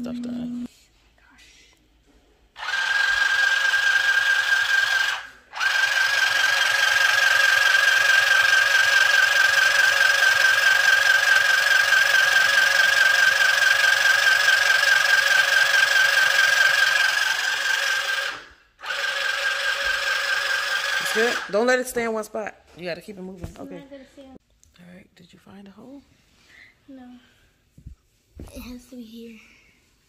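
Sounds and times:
sewing machine motor whine: 0:02.6 - 0:21.6.

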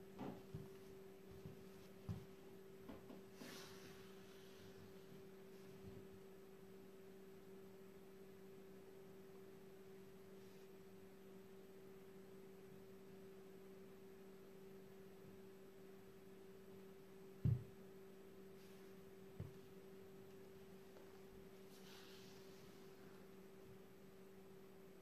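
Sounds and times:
steady low hum: 0:00.0 - 0:25.0
sandal thump on wooden floor: 0:17.4 - 0:17.7.

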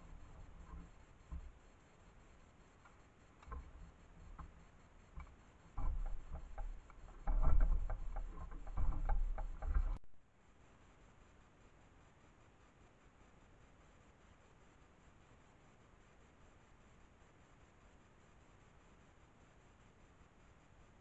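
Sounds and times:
crackling ticking clicks: 0:02.8 - 0:10.2
low rumbling bumps: 0:05.7 - 0:10.2.

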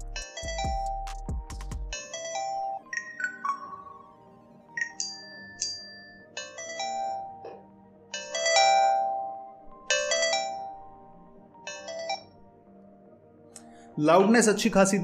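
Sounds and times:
smartwatch ringtone chiming melody: 0:00.0 - 0:12.4.

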